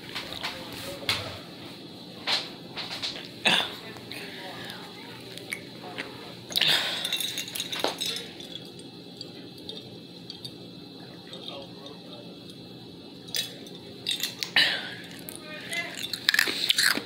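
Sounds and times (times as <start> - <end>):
person drinking: 3.1 - 17.0
glass jar clinking: 6.5 - 10.6, 13.3 - 14.5, 15.9 - 17.0.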